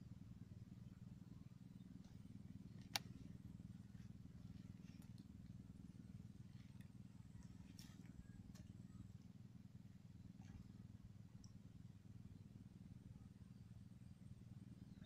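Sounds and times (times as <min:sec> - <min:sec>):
faint low hum: 0:00.0 - 0:15.0
sharp click: 0:02.8 - 0:03.2.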